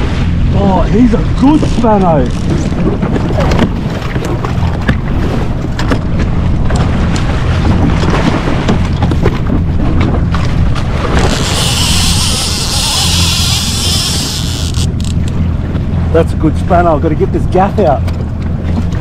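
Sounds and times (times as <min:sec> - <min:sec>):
knocks and slaps on jet ski: 0:00.0 - 0:11.4, 0:14.9 - 0:19.0
wind rumbling on microphone: 0:00.0 - 0:19.0
fish thrashing and splashing: 0:01.1 - 0:15.5.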